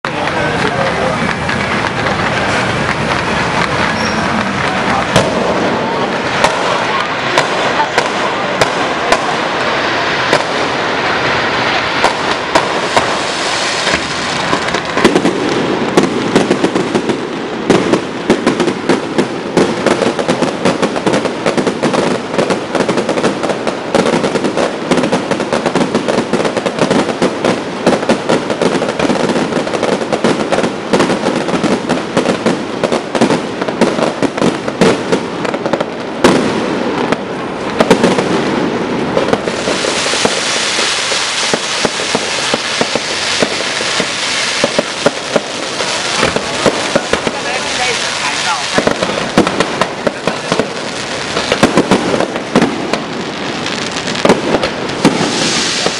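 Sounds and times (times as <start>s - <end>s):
fireworks bangs and crackling: 0.0s - 55.9s
hiss of spark fountains: 39.5s - 51.9s, 53.9s - 55.9s.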